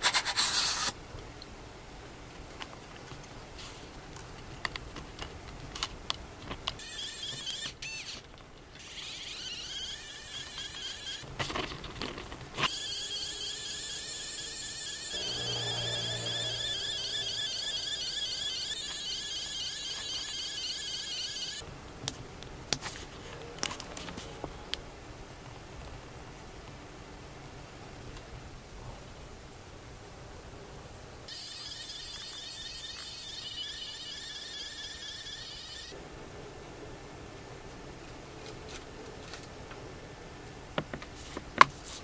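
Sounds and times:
high warbling electric motor whine: 12.7s - 21.6s, 31.3s - 36.0s
deeper hum: 15.1s - 18.8s.

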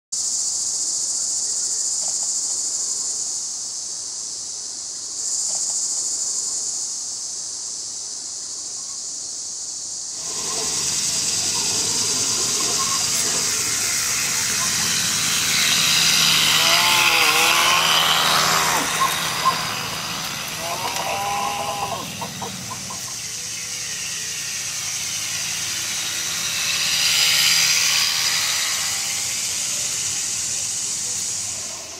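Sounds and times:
insect buzz: 0.2s - 31.9s
model train rolling on rails: 10.0s - 31.9s.

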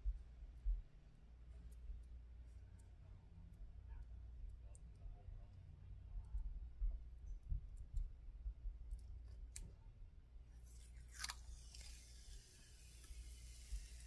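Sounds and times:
plastic film peeling off: 10.7s - 14.0s.

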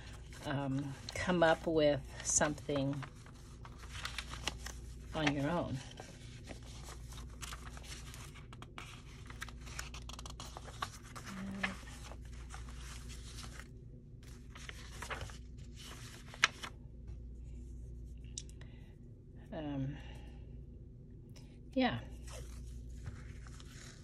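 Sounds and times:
paper rustling and crinkling: 0.0s - 16.8s, 22.1s - 24.0s.

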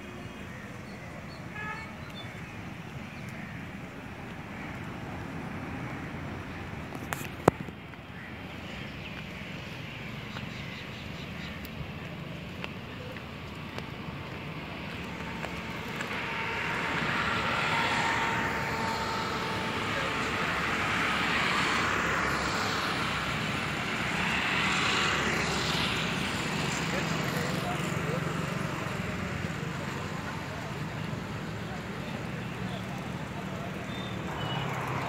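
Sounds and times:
passing engine rush: 14.7s - 32.3s.

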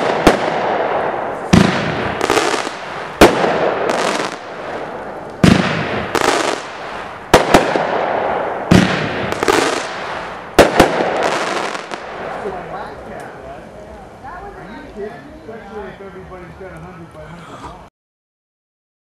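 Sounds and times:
firework launch bangs: 0.0s - 12.6s
firework crackling bursts: 0.0s - 13.9s.

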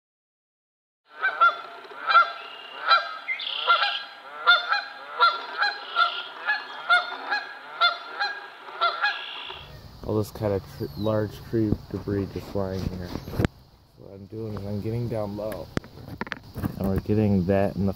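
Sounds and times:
goose honking: 1.1s - 9.7s.

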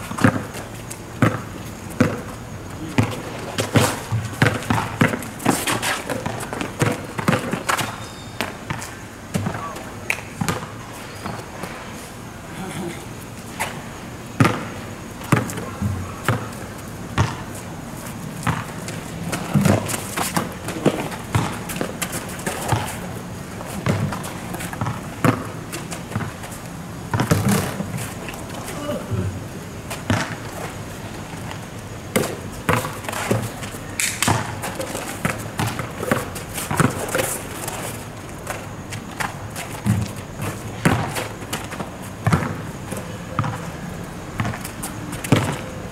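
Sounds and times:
basketball bouncing on asphalt: 0.0s - 9.8s, 10.4s - 11.4s, 13.6s - 17.7s, 18.3s - 45.8s.

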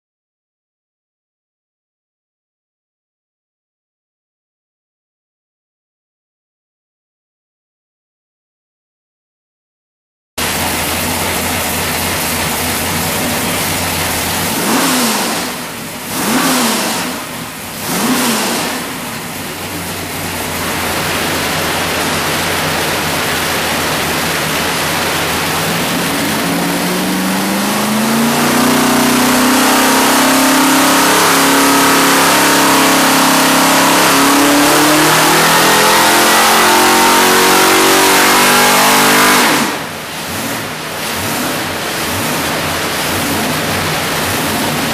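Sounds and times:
car engine revving on a dyno: 10.4s - 44.9s.

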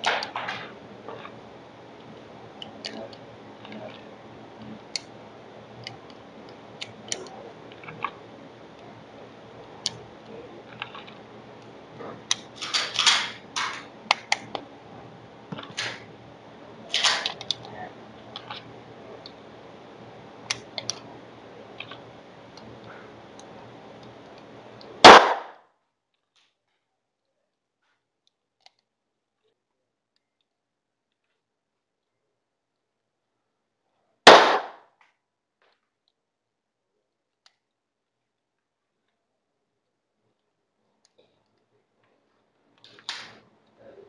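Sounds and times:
pistol parts rattling: 12.5s - 13.8s.

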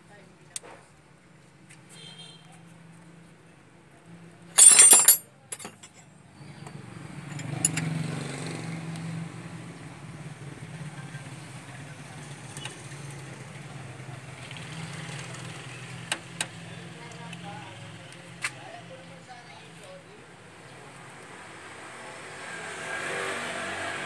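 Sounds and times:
sharp metallic clatter: 4.6s - 6.0s
light metal clinks: 4.6s - 6.1s, 7.3s - 7.9s.

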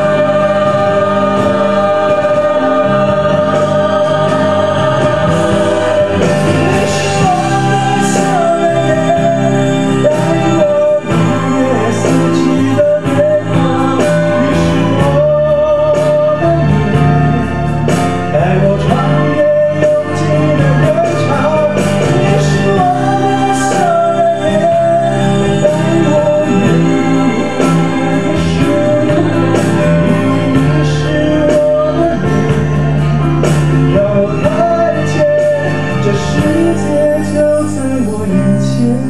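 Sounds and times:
sustained backing chords: 0.0s - 39.0s
man singing into microphone: 5.6s - 17.4s, 18.3s - 32.6s, 33.9s - 39.0s.

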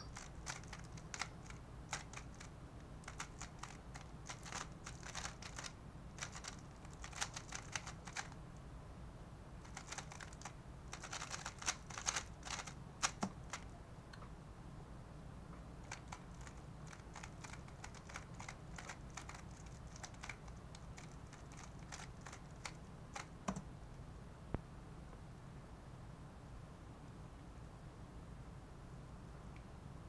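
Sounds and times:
puzzle cube clicking: 0.1s - 8.4s, 9.7s - 13.7s, 15.9s - 23.6s.

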